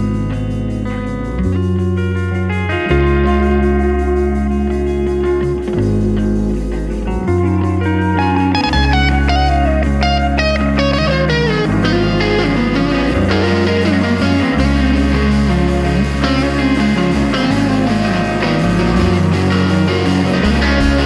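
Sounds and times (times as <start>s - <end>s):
instrumental rock music: 0.0s - 21.0s.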